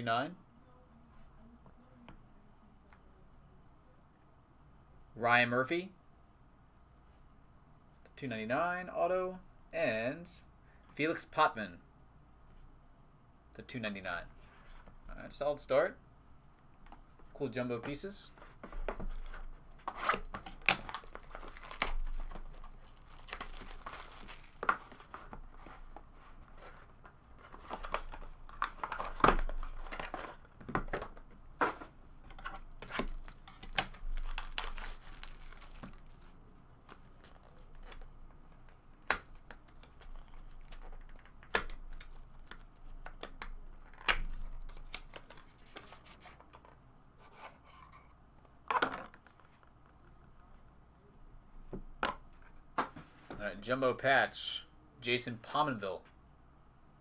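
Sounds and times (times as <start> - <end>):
plastic wrapping tearing and crinkling: 19.8 - 25.0, 32.7 - 36.2.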